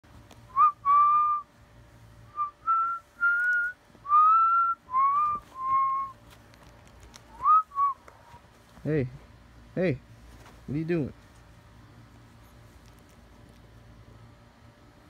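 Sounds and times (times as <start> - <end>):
person whistling a slow tune: 0.5 - 1.4, 2.3 - 6.2, 7.4 - 8.0.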